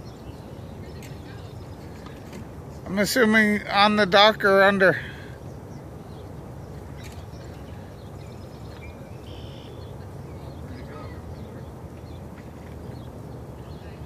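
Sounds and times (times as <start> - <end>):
low outdoor rumble: 0.0 - 14.0
faint bird calls: 5.0 - 14.0.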